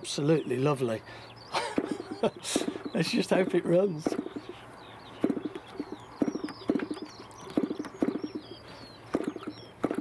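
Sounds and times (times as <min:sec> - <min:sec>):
birds chirping faintly: 0:00.0 - 0:10.0
model engine popping: 0:05.2 - 0:08.5, 0:09.1 - 0:10.0.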